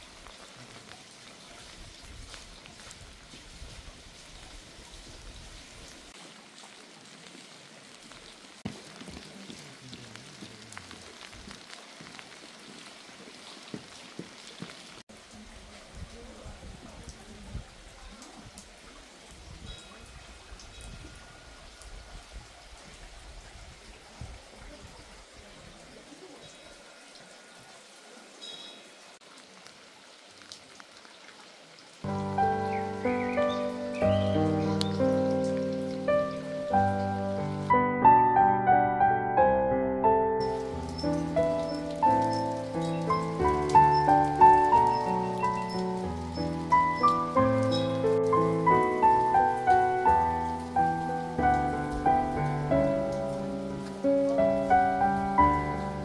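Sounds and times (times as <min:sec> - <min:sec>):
raindrops ticking on surfaces: 0:00.0 - 0:37.8, 0:40.4 - 0:56.0
water patter and trickle: 0:00.0 - 0:37.8, 0:40.4 - 0:56.0
rain falling: 0:00.0 - 0:56.0
instrumental music with sustained notes: 0:32.1 - 0:56.0.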